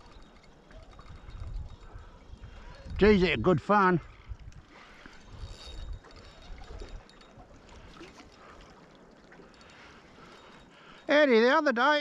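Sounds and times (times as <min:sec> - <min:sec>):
wind buffeting microphone: 0:00.0 - 0:08.2
small waves lapping against hull: 0:00.0 - 0:11.5.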